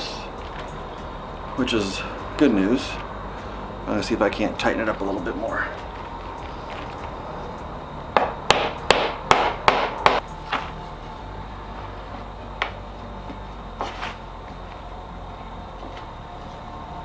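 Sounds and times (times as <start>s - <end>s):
hammer tapping wood: 8.2s - 10.2s.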